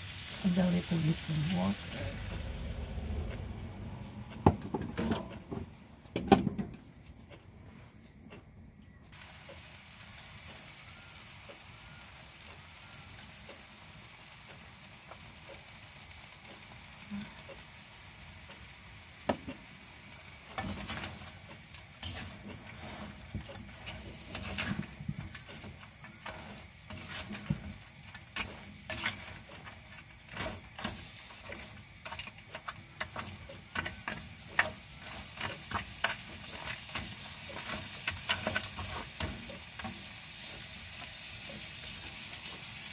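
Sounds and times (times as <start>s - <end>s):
food sizzling in a wok: 0.0s - 5.8s, 9.1s - 42.9s
spatula scraping and knocking pan: 20.4s - 42.7s.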